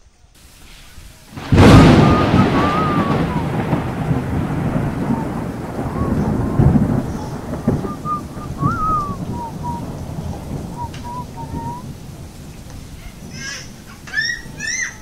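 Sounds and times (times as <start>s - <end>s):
steady hiss: 0.0s - 15.0s
loud low rumble: 1.5s - 11.8s
faint wavering whistles: 1.6s - 4.2s, 4.8s - 11.9s.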